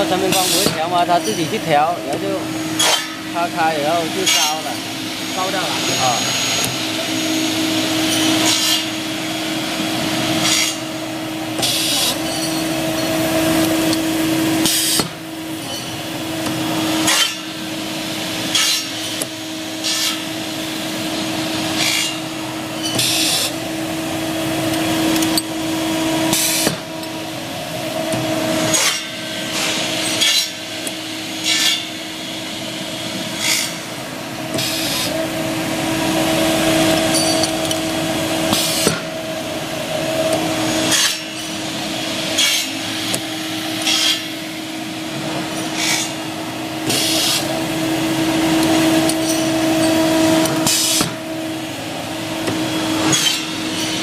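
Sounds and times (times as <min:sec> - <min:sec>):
machine motor hum: 0:00.0 - 0:54.0
sharp metal cutting stroke: 0:02.7 - 0:06.8, 0:08.1 - 0:09.0, 0:10.4 - 0:11.0, 0:17.0 - 0:17.6, 0:28.6 - 0:30.6, 0:31.4 - 0:32.0, 0:33.3 - 0:33.9, 0:40.8 - 0:41.6, 0:42.3 - 0:43.2, 0:43.8 - 0:44.4, 0:45.6 - 0:46.2, 0:53.0 - 0:54.0.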